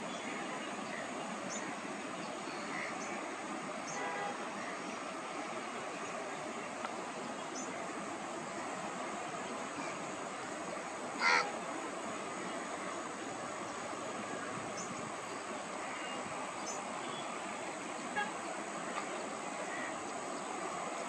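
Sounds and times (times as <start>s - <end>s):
wetland background hiss: 0.0s - 21.0s
harsh bird call: 11.2s - 11.6s.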